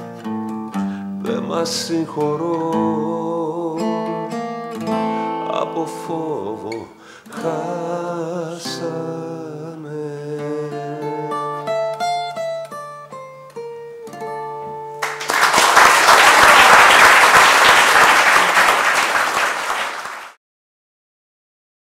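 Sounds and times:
acoustic guitar plucked notes: 0.0 - 15.0
audience applause: 15.0 - 20.4.

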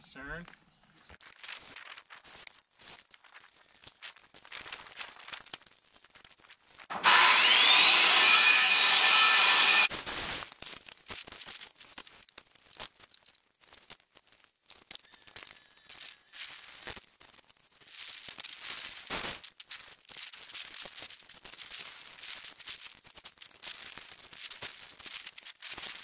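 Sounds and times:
rustle: 10.2 - 26.0.

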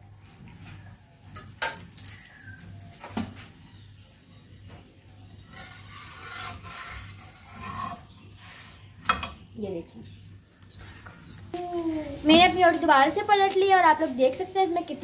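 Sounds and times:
spatula scraping on griddle: 5.2 - 9.4.

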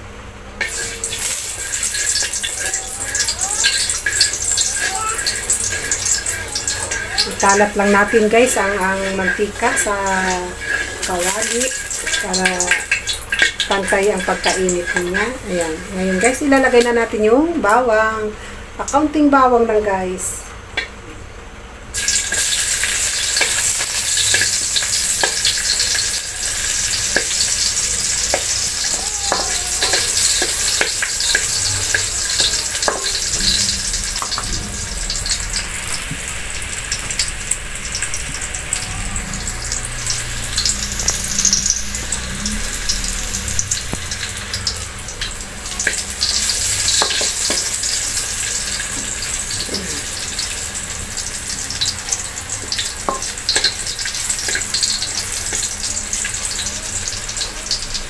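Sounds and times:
garlic sizzling in oil: 0.0 - 21.0, 21.9 - 58.0
wooden spatula scraping a wok: 3.1 - 16.3.

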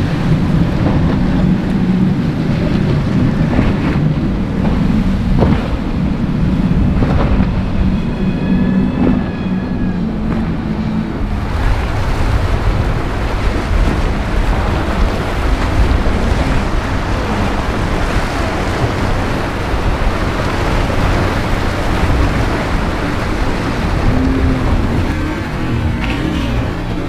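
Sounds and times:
water rushing and splashing: 0.0 - 27.0
wind rumbling on microphone: 0.0 - 27.0.

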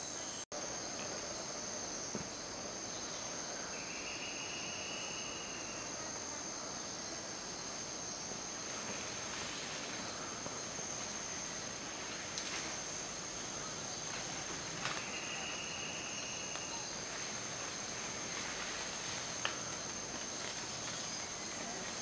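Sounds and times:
soft forest hiss: 0.0 - 22.0
high-pitched insect drone: 2.9 - 6.2, 9.4 - 22.0.

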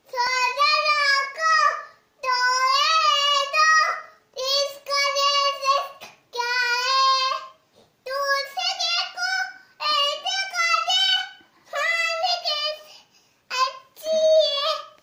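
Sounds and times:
girl singing alone: 0.0 - 15.0
girl breathing: 1.8 - 2.2, 9.5 - 9.8, 12.7 - 13.5.

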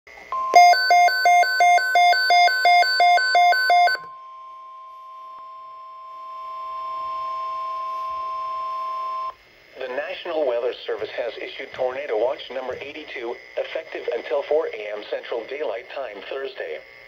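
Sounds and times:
warbling alarm beeps: 0.4 - 9.3.

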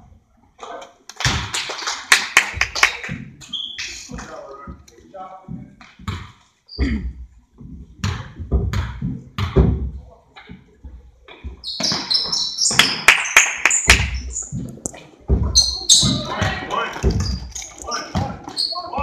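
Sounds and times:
sneakers squeaking: 3.4 - 4.8, 5.5 - 9.8, 10.4 - 19.0
basketball bouncing on wooden floor: 5.5 - 13.1, 13.9 - 19.0.

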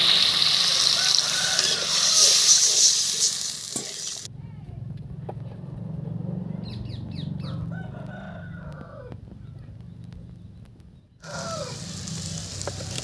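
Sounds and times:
wok sizzling: 0.0 - 4.3, 11.2 - 13.0
rooster crowing: 0.6 - 2.5, 7.4 - 9.2, 11.2 - 12.2.

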